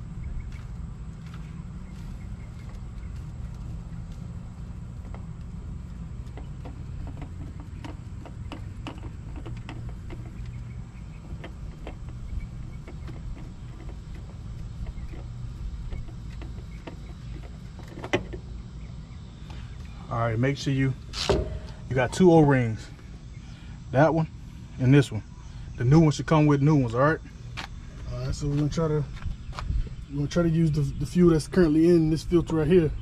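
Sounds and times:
steady low rumble: 0.0 - 33.0
fuel filter clicking and tapping: 2.5 - 18.5.

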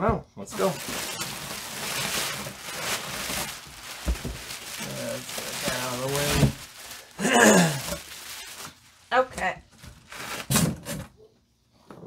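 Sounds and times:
person speaking: 0.4 - 1.2, 4.6 - 8.1
bubble wrap rustling: 0.5 - 11.1
dull thumps: 3.5 - 4.7.

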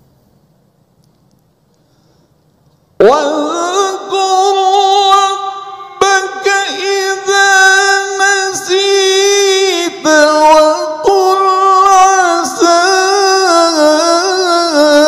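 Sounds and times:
man chanting melodically over microphone: 3.0 - 15.0.

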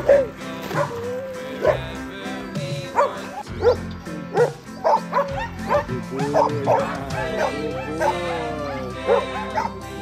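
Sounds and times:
dog barking: 0.0 - 1.0, 1.6 - 1.8, 2.9 - 8.4, 9.0 - 9.8
background music with held chords: 0.0 - 10.0.

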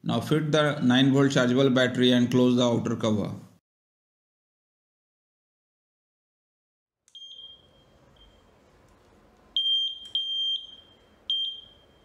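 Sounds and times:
metal detector beeping: 7.1 - 8.4, 9.6 - 12.0.

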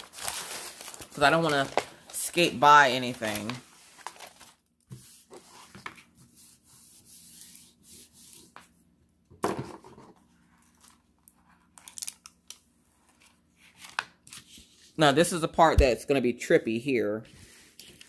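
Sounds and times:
plastic film rustling: 0.0 - 4.7
film peeling crackles: 11.8 - 12.6.

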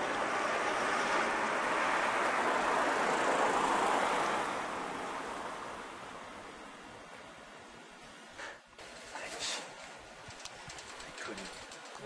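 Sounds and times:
vehicle passing: 0.0 - 6.4.

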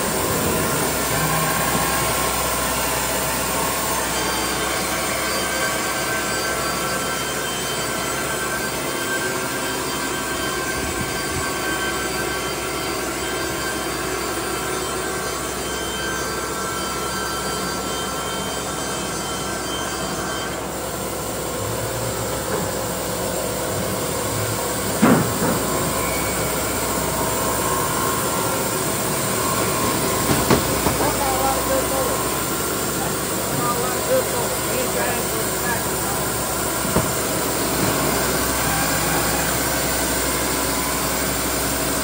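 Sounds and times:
band saw cutting wood: 25.0 - 41.4
sharp knock: 36.9 - 37.2.

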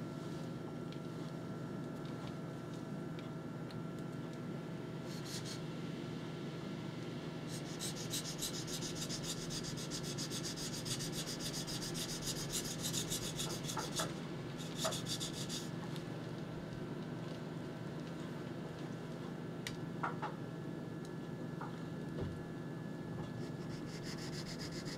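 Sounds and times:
knife sharpening on whetstone: 7.5 - 15.7.

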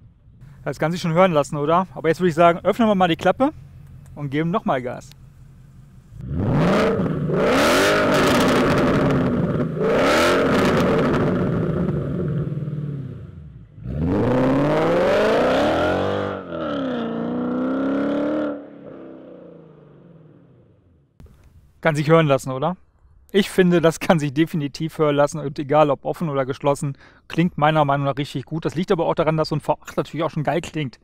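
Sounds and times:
car engine revving loudly: 6.1 - 20.4.

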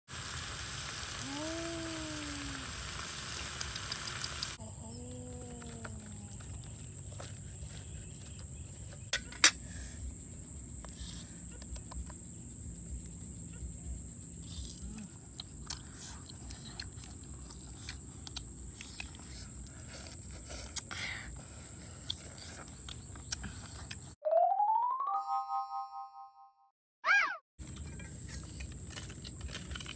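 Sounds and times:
meat sizzling in a wok: 0.1 - 4.6.

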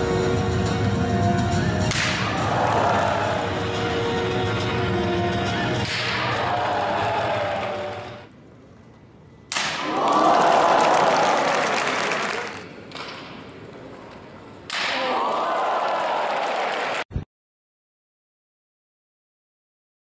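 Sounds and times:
crowd cheering and applauding: 2.2 - 3.7, 9.8 - 12.7, 15.0 - 17.1.

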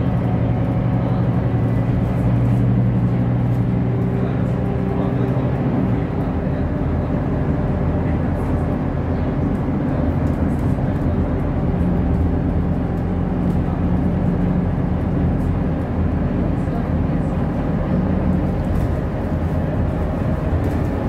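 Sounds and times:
bus engine hum: 0.0 - 21.0
tyre road noise: 0.0 - 21.0.

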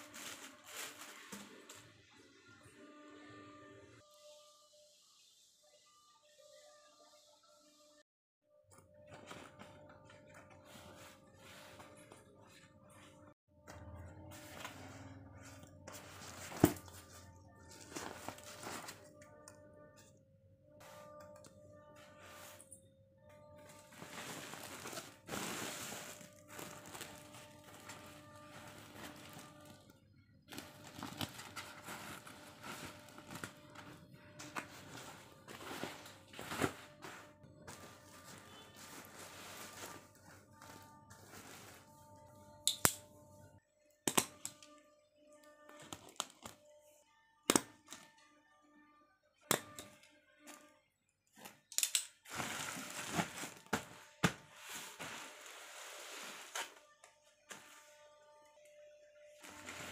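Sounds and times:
plastic sacks rustling: 0.0 - 2.0, 14.1 - 19.2, 23.4 - 42.3, 52.2 - 58.1, 59.2 - 59.9.

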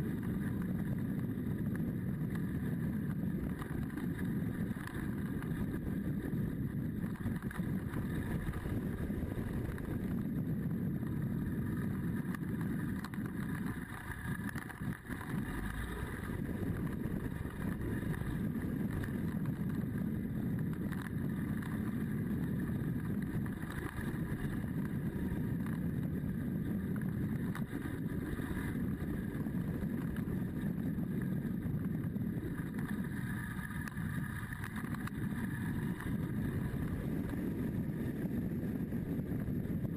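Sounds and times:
motorcycle engine drone: 0.0 - 39.9
wind on microphone: 0.0 - 39.9.

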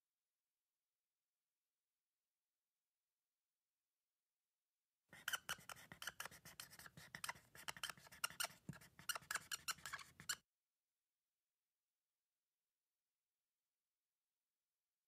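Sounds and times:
marker squeaking on a whiteboard: 5.2 - 10.4.

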